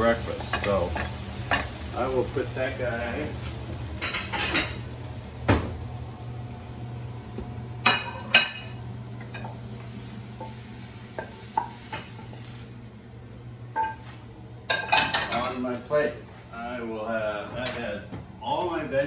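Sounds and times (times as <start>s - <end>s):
faint sizzling: 0.0s - 15.9s.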